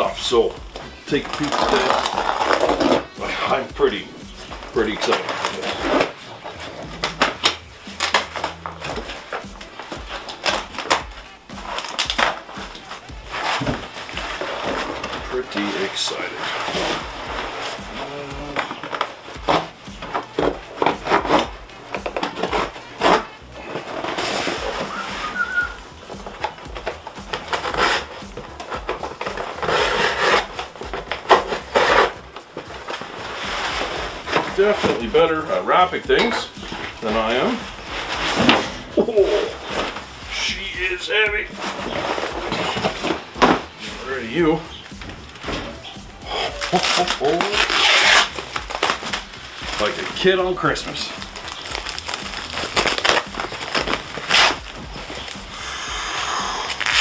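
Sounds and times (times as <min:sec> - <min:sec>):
cardboard ripping: 0:00.0 - 0:57.0
cardboard rustling: 0:00.0 - 0:57.0
cardboard box flaps rustling: 0:36.7 - 0:40.2, 0:41.4 - 0:55.5.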